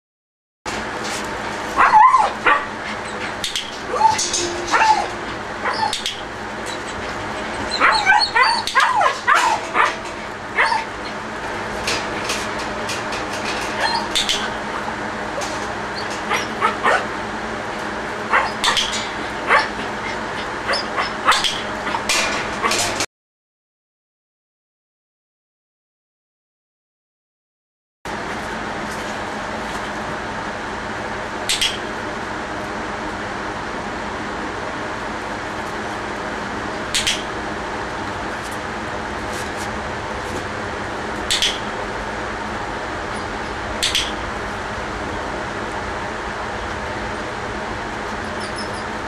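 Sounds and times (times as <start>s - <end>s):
steady hum: 0.7s - 23.1s, 28.2s - 49.0s
puppy yipping and whining: 1.8s - 11.2s, 13.8s - 14.6s, 15.9s - 17.1s, 18.3s - 22.1s, 48.2s - 49.0s.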